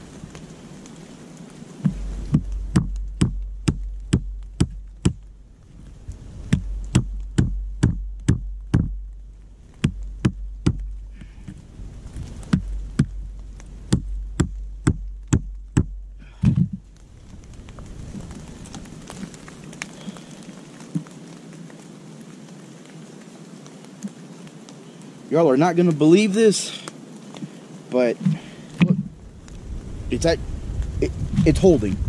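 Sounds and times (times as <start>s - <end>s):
rock knocking on trekking pole: 1.8s - 5.3s, 6.5s - 9.2s, 9.8s - 11.6s, 12.4s - 16.8s, 28.2s - 29.2s.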